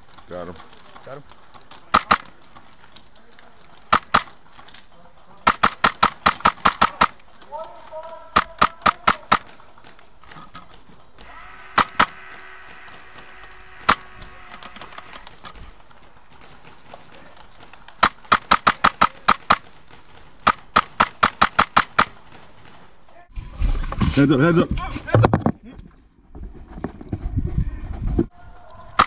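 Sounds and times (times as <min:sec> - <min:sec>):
airsoft rifle shots: 0:01.9 - 0:02.4, 0:03.8 - 0:04.4, 0:05.4 - 0:09.9, 0:11.2 - 0:15.5, 0:18.0 - 0:23.2.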